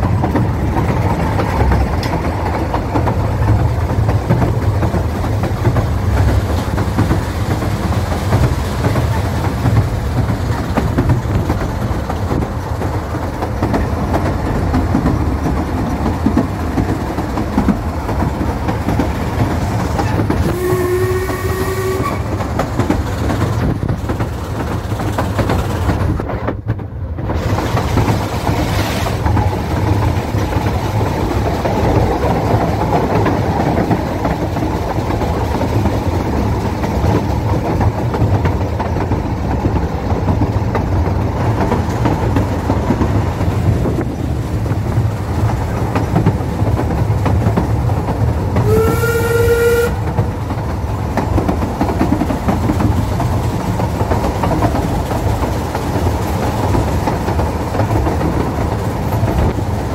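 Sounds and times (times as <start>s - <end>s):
train rumbling on rails: 0.0s - 59.9s
train whistle: 20.4s - 22.4s, 48.6s - 50.1s.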